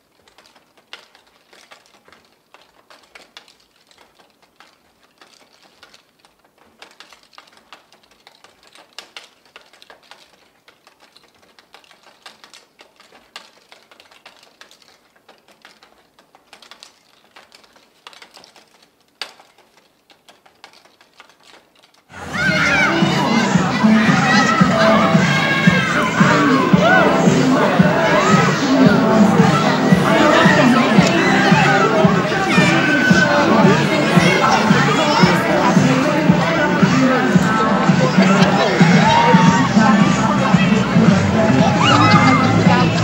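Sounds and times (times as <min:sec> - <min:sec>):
bicycle wheel clicking: 0:00.0 - 0:22.1.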